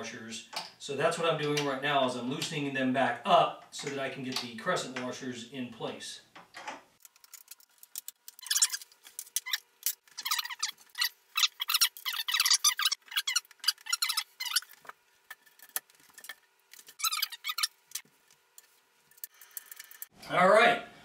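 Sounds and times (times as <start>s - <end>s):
wood squeaking: 8.3s - 14.9s, 16.9s - 18.0s.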